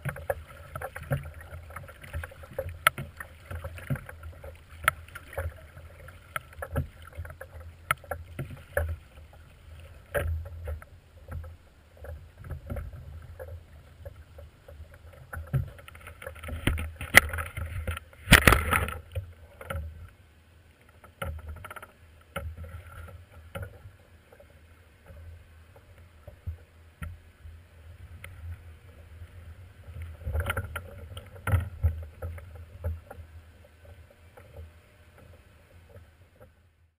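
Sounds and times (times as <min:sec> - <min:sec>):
paddle splashing in water: 0:00.0 - 0:20.0.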